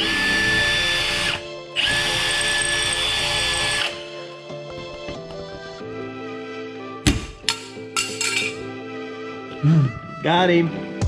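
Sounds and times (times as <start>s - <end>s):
cordless drill whining: 0.0s - 4.1s.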